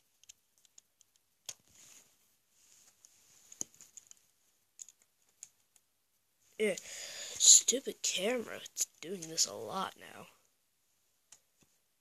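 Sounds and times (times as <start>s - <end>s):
plastic bricks clicking: 4.8s - 5.8s.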